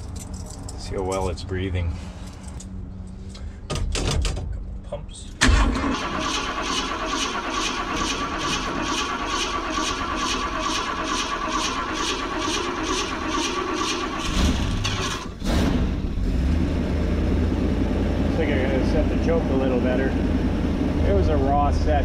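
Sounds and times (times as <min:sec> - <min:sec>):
engine idling: 0:05.2 - 0:15.4.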